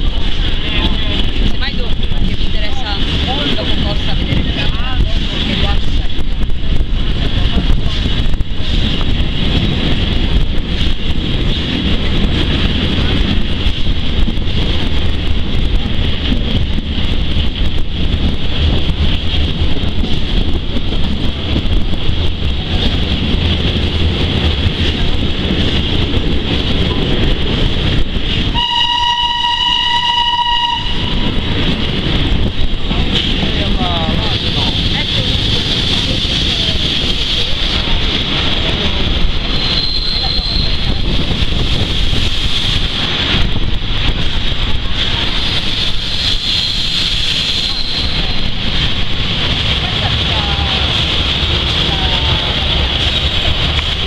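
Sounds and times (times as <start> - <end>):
train rumbling along track: 0.0 - 54.0
steam locomotive whistle: 28.5 - 31.4, 39.6 - 40.8.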